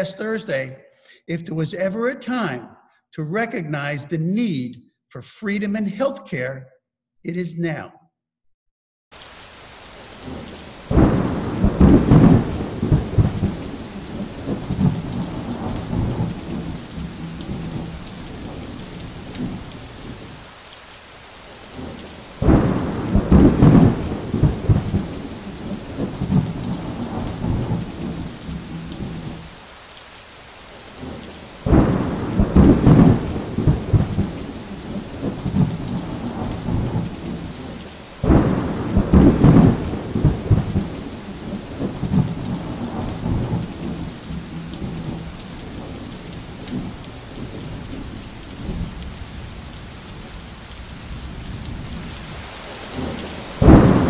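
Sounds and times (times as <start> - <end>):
steady rain: 9.1 - 54.0
rolling thunder: 10.2 - 20.3, 21.8 - 29.4, 31.0 - 49.4, 52.9 - 54.0.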